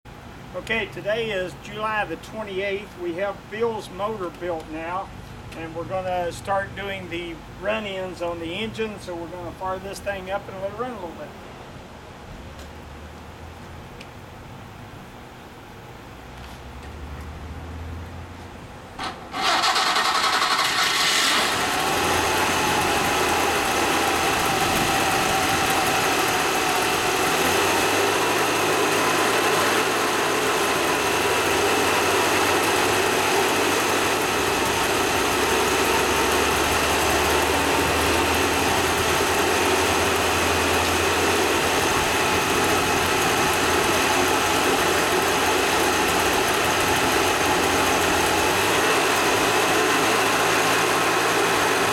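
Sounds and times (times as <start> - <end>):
two-stroke engine starting and running: 19.0 - 51.9.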